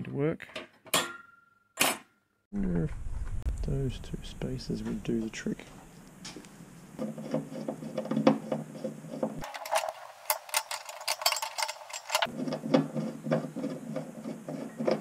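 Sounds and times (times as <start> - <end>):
screwdriver and metal fittings clicking: 9.4 - 12.3.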